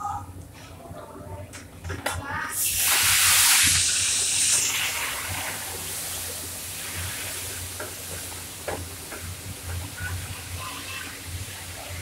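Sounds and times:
food sizzling in hot pan: 2.6s - 12.0s.

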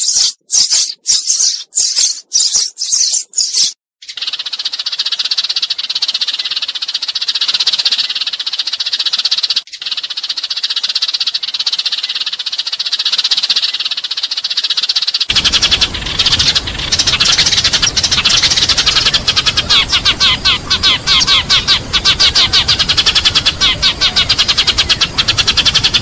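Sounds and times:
sparrows chattering: 0.0s - 26.0s
low rumble: 15.3s - 22.7s.

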